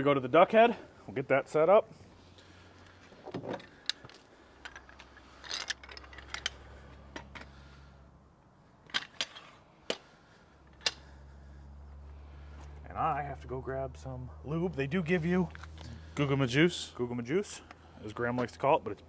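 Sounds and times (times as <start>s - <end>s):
sharp metal clicks and clinks: 3.6s - 7.5s, 8.8s - 10.1s, 10.7s - 11.1s.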